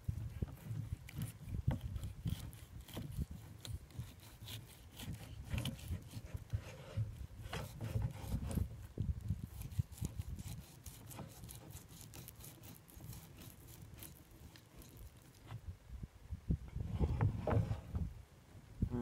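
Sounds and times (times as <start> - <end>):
knife scraping on cutting board: 0.6 - 8.7.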